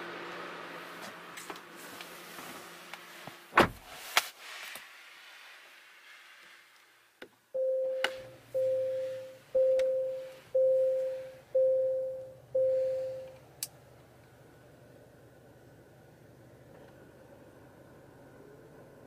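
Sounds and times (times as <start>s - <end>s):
electronic warning chimes: 7.6s - 13.4s
car engine idling hum: 7.6s - 19.0s.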